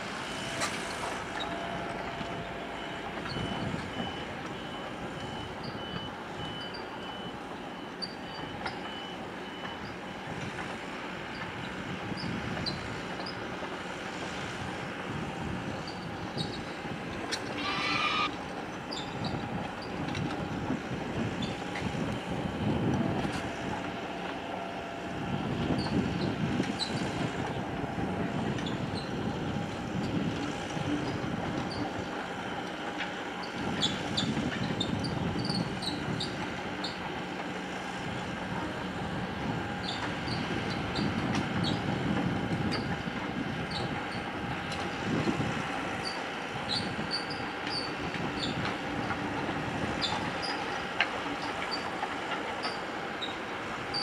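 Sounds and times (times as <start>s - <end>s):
short high squeaks: 17.3s - 19.4s, 51.5s - 51.9s, 52.6s - 54.0s.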